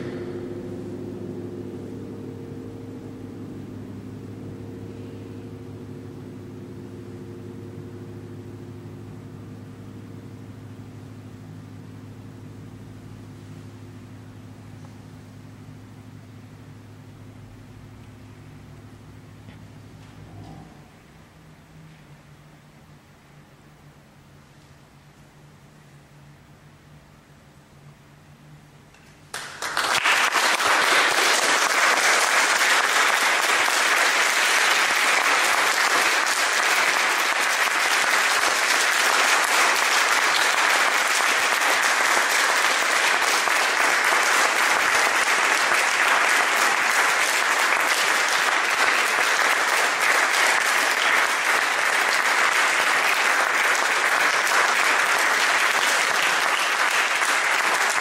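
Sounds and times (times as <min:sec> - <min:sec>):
audience applauding: 0:29.3 - 0:58.0.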